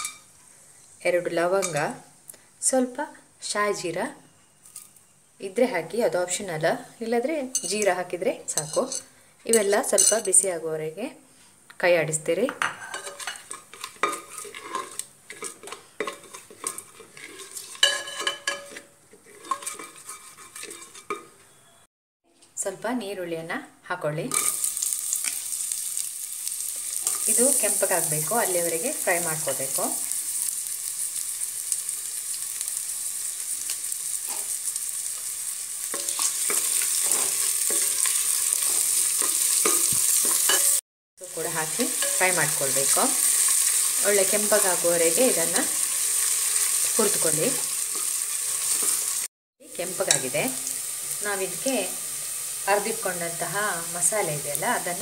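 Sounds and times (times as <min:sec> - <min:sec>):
onions sizzling in hot fat: 0:00.0 - 0:10.5, 0:12.1 - 0:21.0, 0:24.2 - 0:55.0
metal ladle scraping a pot: 0:12.7 - 0:21.7.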